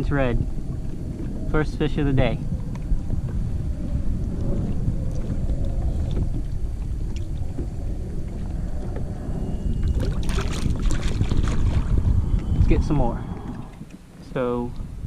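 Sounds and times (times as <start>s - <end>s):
water lapping against a kayak: 0.0s - 15.0s
wind rumbling on microphone: 0.0s - 15.0s
fish splashing in water: 4.1s - 12.6s.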